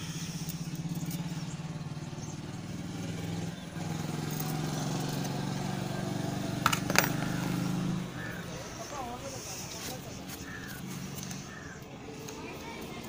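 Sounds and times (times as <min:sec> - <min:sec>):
engine idling: 0:00.0 - 0:13.0
sharp metallic clicks: 0:00.3 - 0:01.7.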